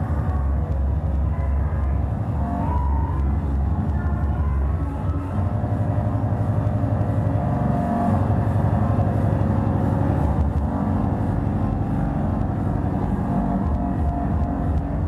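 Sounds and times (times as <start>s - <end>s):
held synth tone: 2.3s - 15.0s
fast distorted kick drum: 10.1s - 15.0s.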